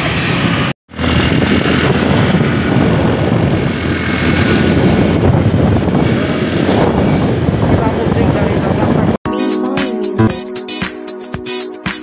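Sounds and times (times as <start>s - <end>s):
road traffic: 0.0s - 9.2s
wind buffeting microphone: 0.0s - 9.2s.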